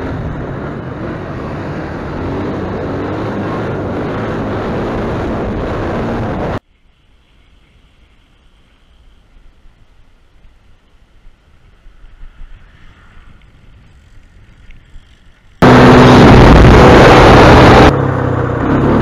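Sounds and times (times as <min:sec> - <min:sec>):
wind noise on microphone: 0:00.0 - 0:06.6, 0:11.2 - 0:18.0
quiet hiss: 0:06.6 - 0:15.6
quad bike engine running: 0:13.9 - 0:19.0.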